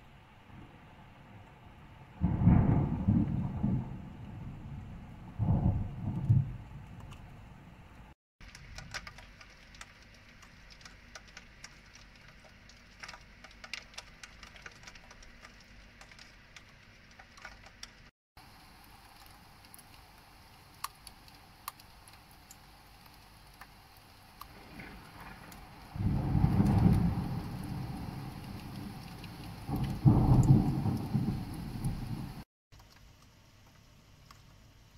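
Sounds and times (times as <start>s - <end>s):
raindrops tapping surfaces: 2.2s - 7.4s, 8.0s - 34.9s
rain hissing: 8.4s - 32.5s.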